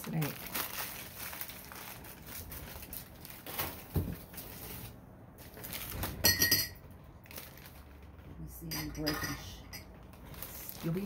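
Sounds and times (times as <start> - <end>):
packing paper rustling: 0.0 - 6.2, 7.1 - 8.3, 9.9 - 11.0.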